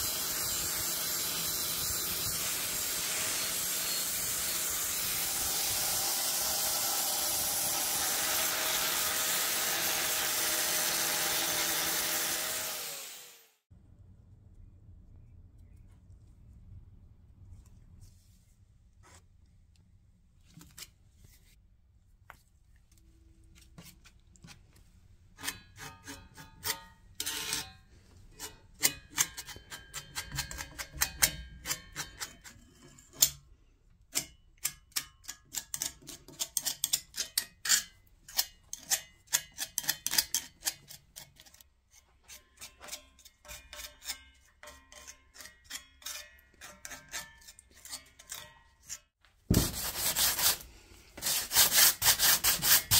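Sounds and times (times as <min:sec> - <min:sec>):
spreader blade clicking and scraping: 0:34.1 - 0:49.2.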